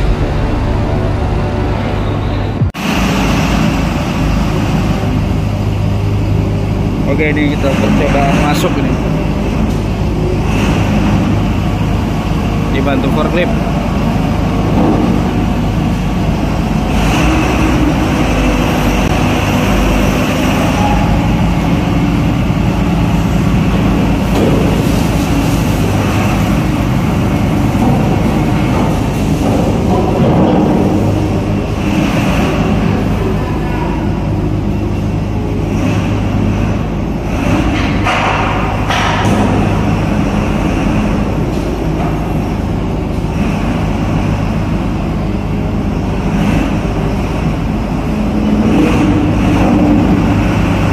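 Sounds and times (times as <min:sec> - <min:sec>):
heavy vehicle engines running: 0:00.0 - 0:50.9.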